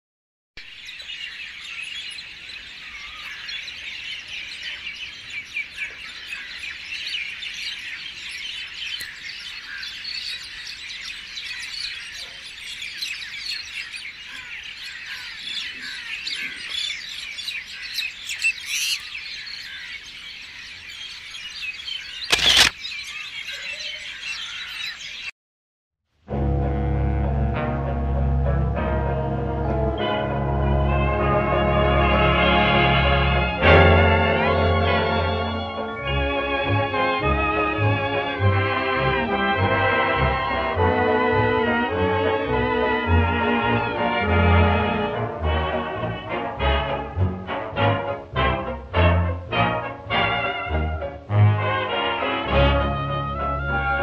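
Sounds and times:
small birds chirping: 0.6 - 25.3
sharp loud click: 22.3 - 22.8.

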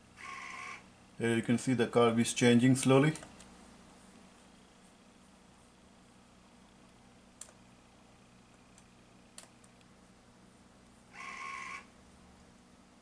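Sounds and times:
low steady hum: 0.0 - 13.0
faint clicks: 7.4 - 7.6.

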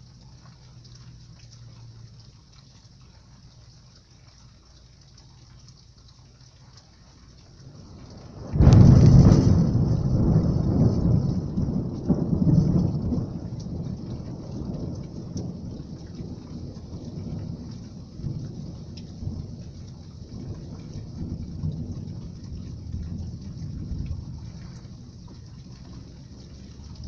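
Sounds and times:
heavy rain on street: 0.0 - 27.0
thunder rumbling: 7.2 - 27.0.

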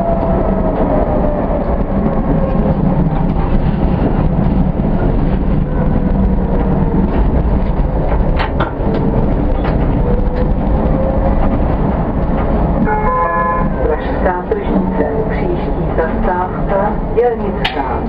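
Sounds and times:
tram rumbling on track: 0.0 - 18.0
wheel clacks over rails: 6.1 - 10.8.

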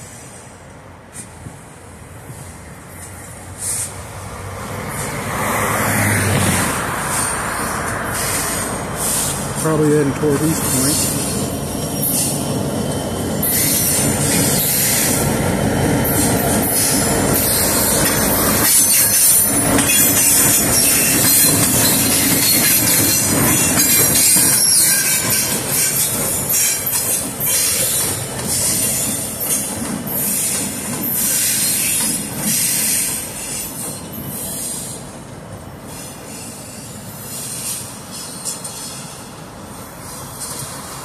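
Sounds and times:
wheels clacking over rail joints: 6.2 - 34.4
diesel locomotive engines running: 6.4 - 41.0
wheels squealing: 10.5 - 15.2, 16.0 - 35.0.

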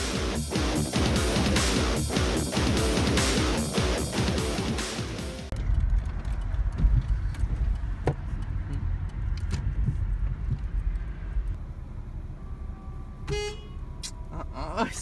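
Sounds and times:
low rumble of engine and tyres: 5.5 - 15.0.

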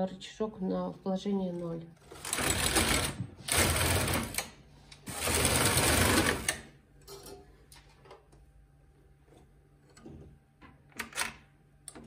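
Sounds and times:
knitting machine carriage rattling: 2.0 - 4.5, 5.1 - 6.7.

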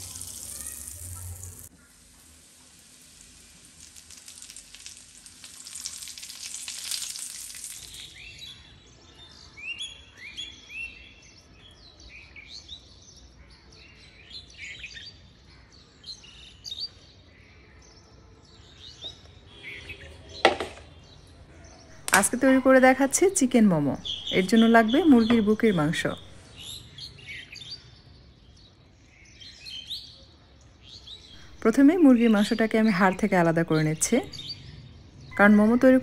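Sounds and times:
hot oil sizzling: 0.0 - 8.4, 22.0 - 26.4
birds chirping: 0.0 - 11.5, 21.8 - 27.8, 31.4 - 36.0.

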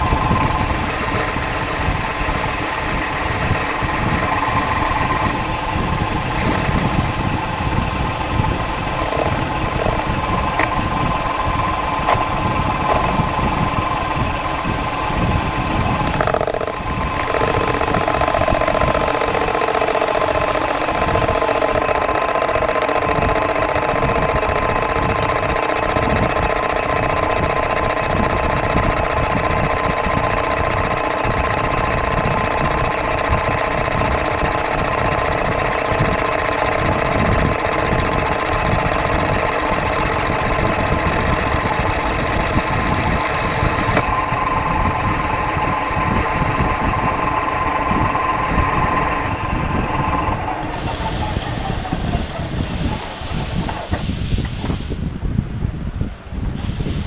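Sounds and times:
metal lathe humming: 0.0 - 55.1
cutting tool scraping metal: 8.8 - 10.8, 16.0 - 44.0.

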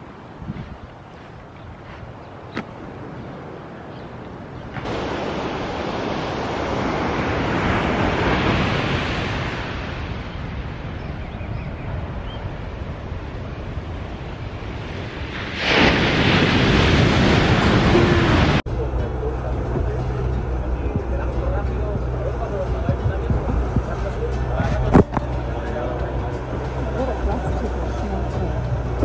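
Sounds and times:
ocean surf washing onto beach: 0.0 - 29.0.

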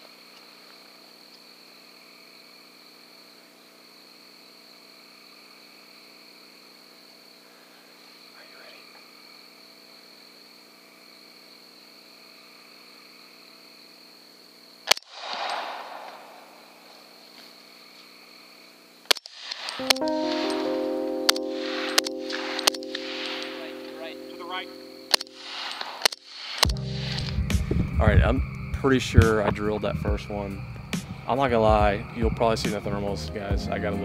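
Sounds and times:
frogs: 0.0 - 20.0, 22.5 - 34.0
night insects chorus: 0.0 - 34.0
rifle shot: 14.9 - 16.9, 19.1 - 20.5, 21.6 - 23.7, 25.1 - 27.2.

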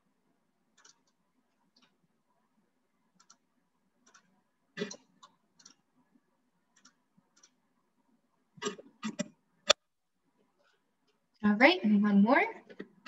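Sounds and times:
mouse and keyboard clicks: 8.6 - 9.8.

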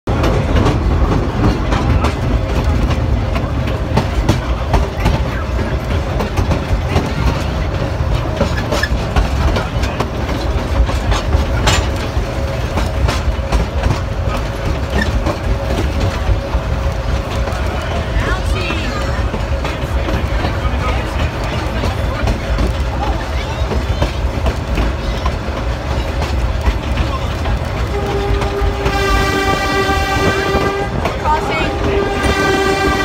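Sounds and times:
rail car wheels rumbling: 0.0 - 33.0
clicks and clanks: 0.2 - 16.5.

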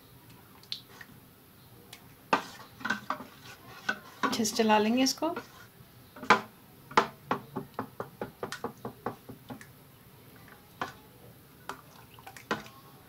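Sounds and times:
spoon stirring thick batter: 1.9 - 7.5, 10.4 - 13.0.

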